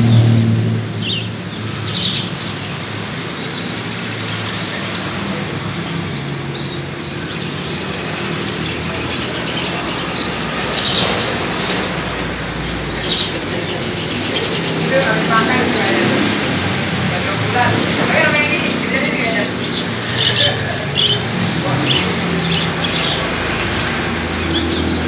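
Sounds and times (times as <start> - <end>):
traffic noise: 0.0 - 25.0
budgerigars chirping: 1.0 - 25.0.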